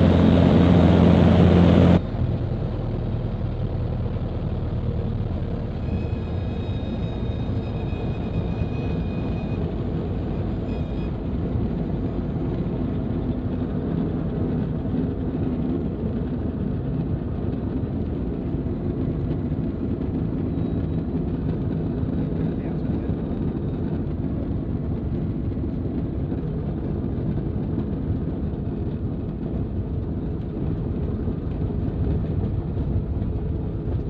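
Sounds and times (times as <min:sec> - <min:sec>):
propeller engine running: 0:00.0 - 0:34.0
faint high whistle: 0:05.7 - 0:09.8, 0:10.6 - 0:11.2.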